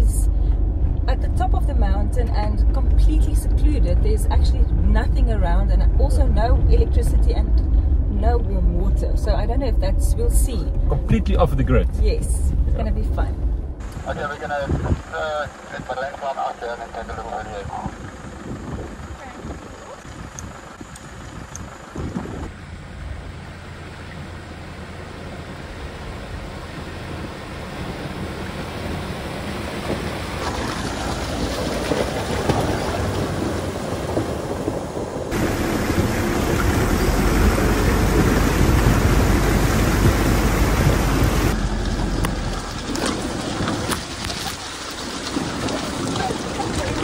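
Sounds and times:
deep engine rumble: 0.0s - 47.0s
tyres splashing through water: 23.6s - 47.0s.

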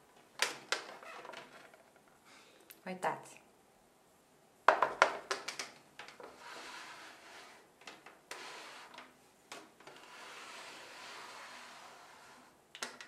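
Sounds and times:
plastic plate clicks and knocks: 4.7s - 6.2s
plastic plate scraping on wood: 6.2s - 7.7s, 8.3s - 9.0s, 9.8s - 12.6s.

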